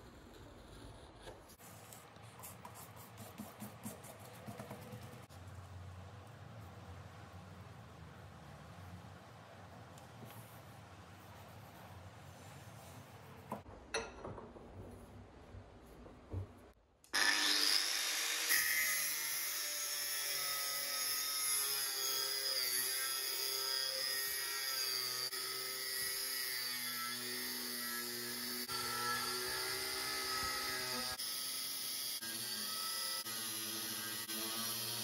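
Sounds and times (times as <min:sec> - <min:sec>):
angle grinder cutting metal: 0:17.1 - 0:35.0.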